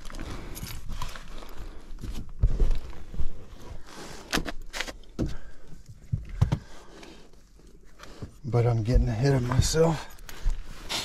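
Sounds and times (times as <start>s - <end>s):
knocks and thumps of handling: 5.1s - 6.7s.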